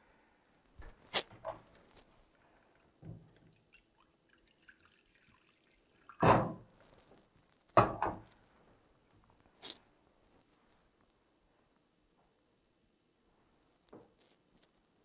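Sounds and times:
water pouring into a bowl: 0:02.6 - 0:06.3.

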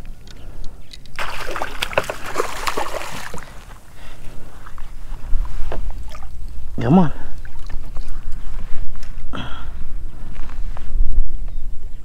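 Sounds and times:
fish splashing at water surface: 0:01.2 - 0:03.8.

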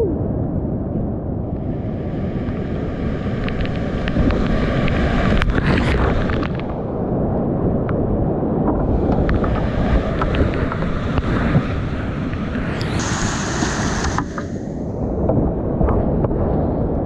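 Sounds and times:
thin high whine: 0:12.5 - 0:14.9.

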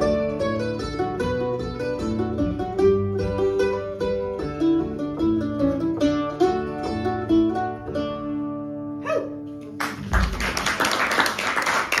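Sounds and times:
mandolin fiddle and guitar playing: 0:00.0 - 0:09.8
audience applause: 0:09.8 - 0:12.0.

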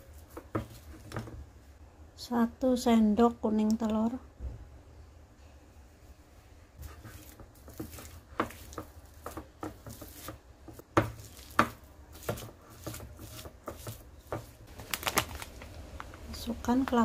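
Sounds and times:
spatula scraping ceramic bowl: 0:06.8 - 0:11.6.

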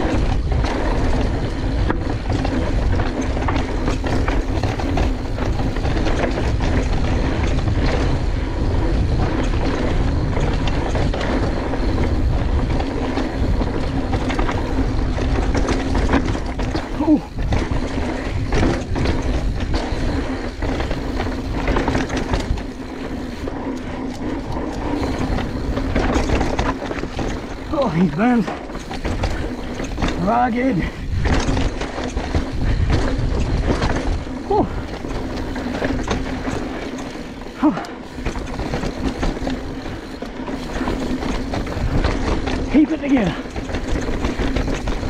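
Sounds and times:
bike rattling and knocking: 0:00.0 - 0:45.0
bike tyres rolling over dirt: 0:00.0 - 0:45.0
wind rushing over microphone: 0:00.0 - 0:45.0
rider grunting: 0:16.7 - 0:17.6, 0:34.2 - 0:35.2, 0:37.5 - 0:38.2.

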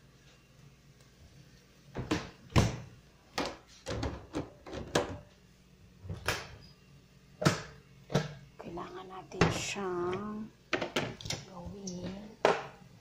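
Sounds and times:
knocks and thuds in a kitchen: 0:01.9 - 0:05.3, 0:06.0 - 0:06.6, 0:07.4 - 0:08.5, 0:09.4 - 0:12.8.

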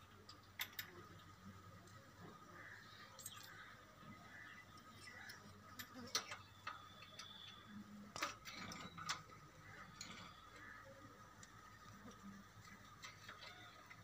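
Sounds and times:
electrical wires clicking and rustling: 0:04.3 - 0:14.0.

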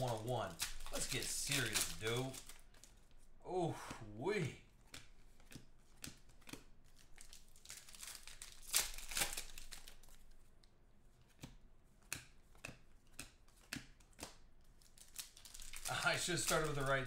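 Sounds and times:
plastic wrapper crinkling and tearing: 0:00.0 - 0:03.3, 0:06.3 - 0:10.4, 0:14.6 - 0:17.0
cards rustling: 0:00.0 - 0:03.4, 0:04.2 - 0:17.0.

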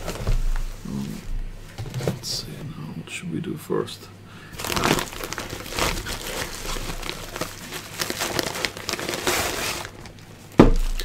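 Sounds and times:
plastic bag crinkling: 0:04.5 - 0:11.0.

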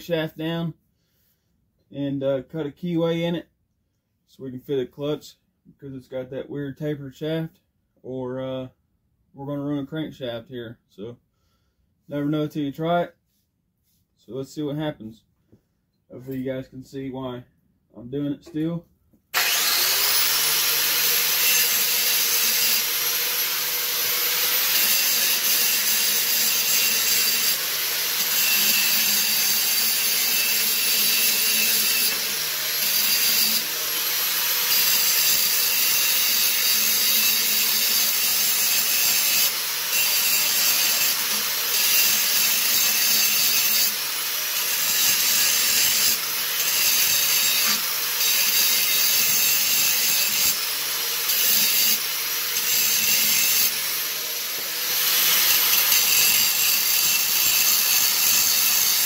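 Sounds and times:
power tool grinding steel: 0:19.3 - 0:59.0.

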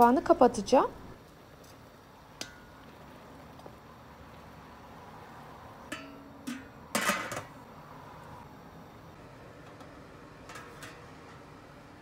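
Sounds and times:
metal pot lid clinking: 0:05.9 - 0:07.5, 0:10.4 - 0:11.5.

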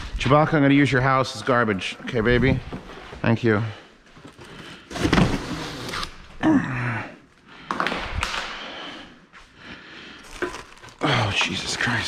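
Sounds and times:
plastic wrap crinkling: 0:10.2 - 0:12.0.

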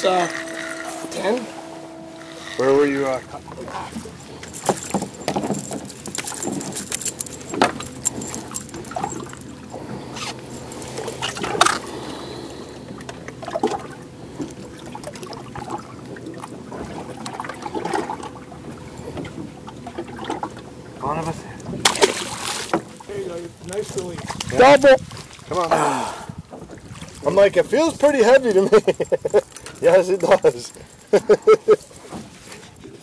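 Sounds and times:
water splashing against boat: 0:00.0 - 0:33.0.

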